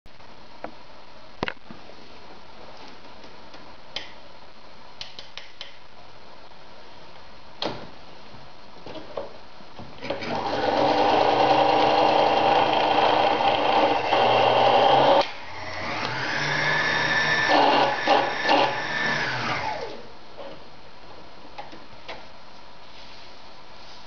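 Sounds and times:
sewing machine running: 10.1s - 20.0s.

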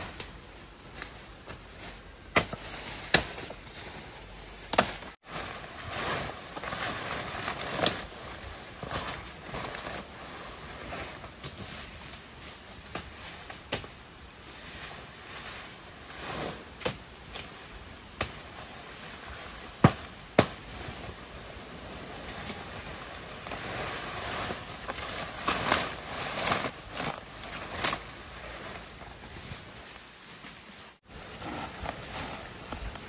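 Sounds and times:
large leaves rustling: 0.0s - 33.0s
stems cracking: 4.6s - 5.2s.

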